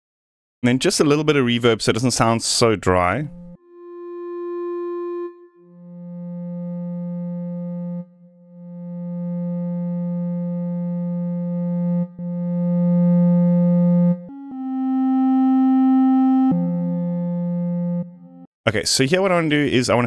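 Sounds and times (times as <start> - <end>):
synthesizer clarinet-like notes: 3.0 - 18.5.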